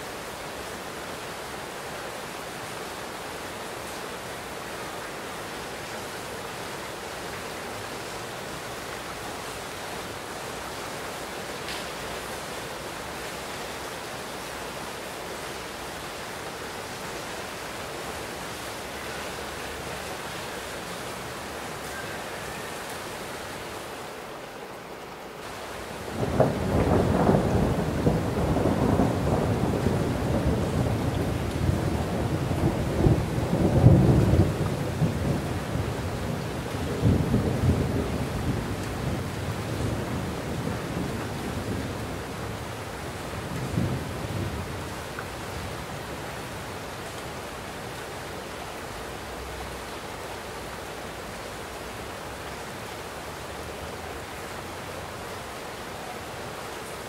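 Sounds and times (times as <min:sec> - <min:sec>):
heavy rain: 0:00.0 - 0:57.0
thunder rumbling: 0:25.9 - 0:45.0.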